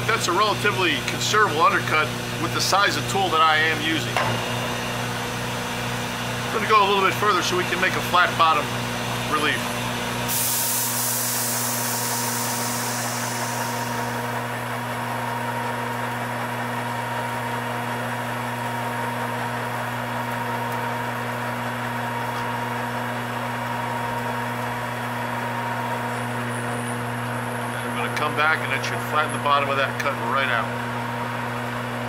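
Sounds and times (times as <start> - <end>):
metal lathe humming: 0.0 - 32.0
coolant spray hissing: 0.8 - 14.6.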